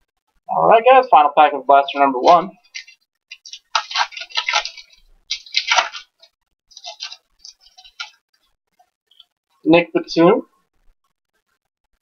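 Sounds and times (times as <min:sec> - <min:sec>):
plastic foil pack crinkling: 0:02.2 - 0:08.2.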